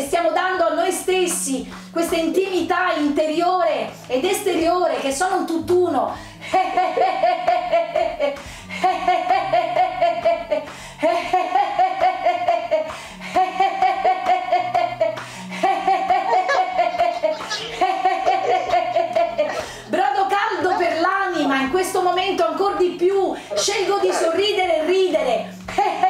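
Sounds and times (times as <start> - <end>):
background music with bass line: 0.0 - 26.0
rapid laughter: 15.6 - 19.9, 23.4 - 24.9.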